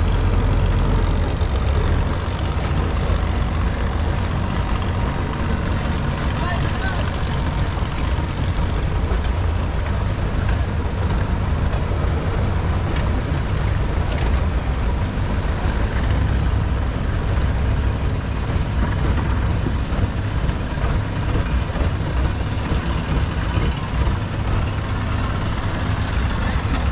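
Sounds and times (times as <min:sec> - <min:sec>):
boat engine droning: 0:00.0 - 0:26.9.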